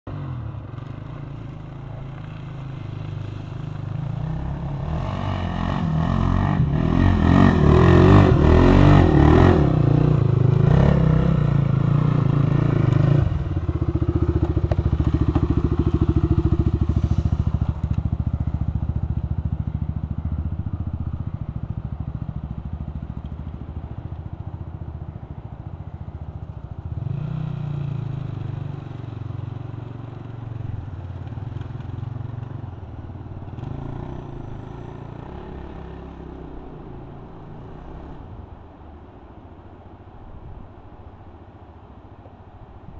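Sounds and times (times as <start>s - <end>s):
second quad engine: 0.0s - 39.4s
quad engine revving: 3.9s - 18.1s.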